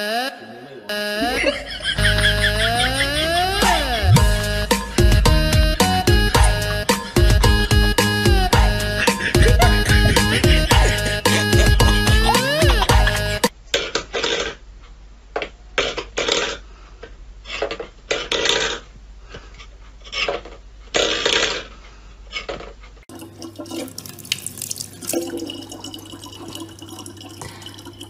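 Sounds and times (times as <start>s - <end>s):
tap water running into plastic bottle: 23.1s - 28.0s.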